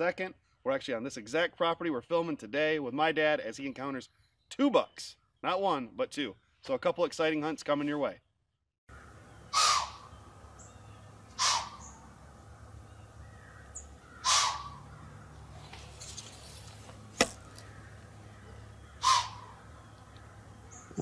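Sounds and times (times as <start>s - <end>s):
crow cawing: 8.9s - 10.2s, 11.3s - 12.0s, 13.2s - 15.6s, 17.3s - 21.0s.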